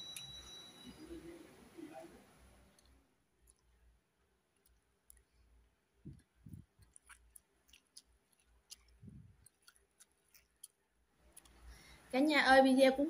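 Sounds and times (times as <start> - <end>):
soft low chewing thuds: 2.5 - 12.1
mouth clicks while chewing: 6.0 - 11.8.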